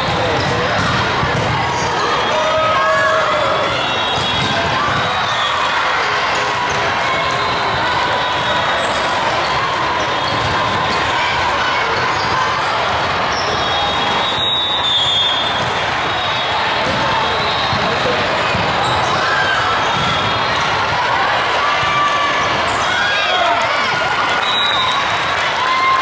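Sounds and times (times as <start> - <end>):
volleyballs struck and bouncing: 0.0 - 2.3, 4.0 - 5.3, 6.0 - 14.3, 16.8 - 24.4
hubbub of voices in hall: 0.0 - 26.0.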